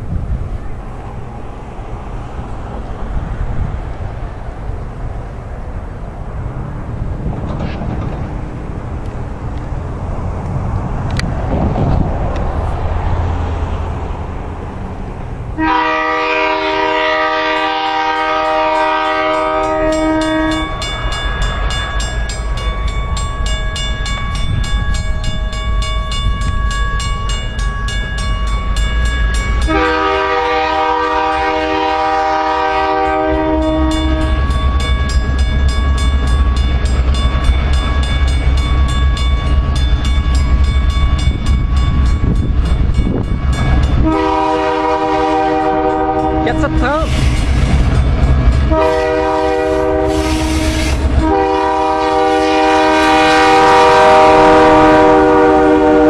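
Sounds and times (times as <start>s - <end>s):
diesel engines rumbling: 0.0s - 56.0s
locomotive air horn blasts: 15.6s - 20.9s, 29.6s - 34.5s, 44.0s - 47.2s, 48.6s - 56.0s.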